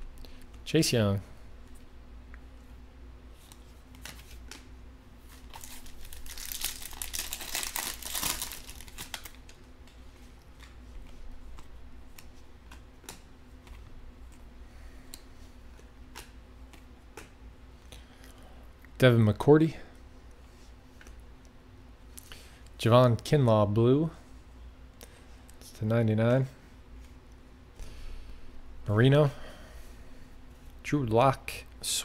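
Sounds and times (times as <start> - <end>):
crinkling rustle: 3.4 - 12.8.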